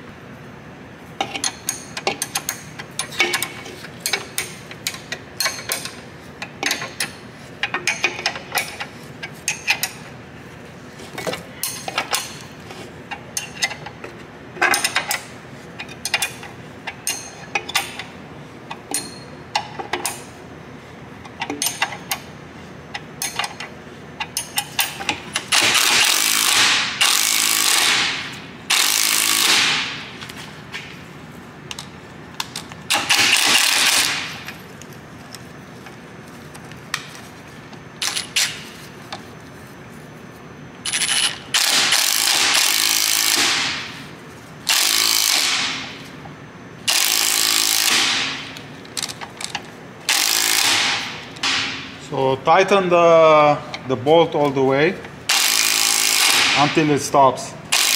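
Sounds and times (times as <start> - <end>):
impact wrench hammering: 24.4 - 30.2, 32.9 - 34.5, 40.9 - 43.9, 44.7 - 46.0, 46.9 - 48.6, 50.1 - 52.0, 55.3 - 56.9
ratchet wrench clicking: 28.7 - 29.6, 44.7 - 45.6, 49.0 - 50.8, 55.3 - 56.5.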